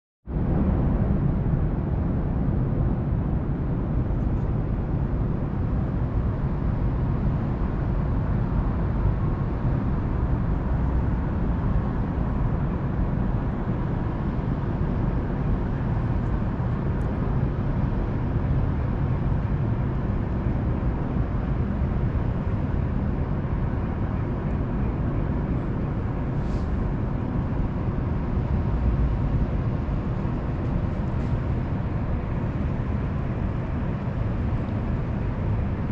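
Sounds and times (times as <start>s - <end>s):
distant city traffic rumble: 0.3s - 35.9s.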